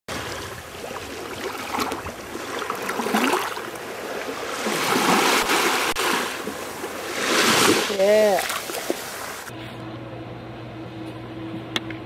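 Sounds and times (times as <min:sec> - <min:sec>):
ocean surf on beach: 0:00.1 - 0:09.5.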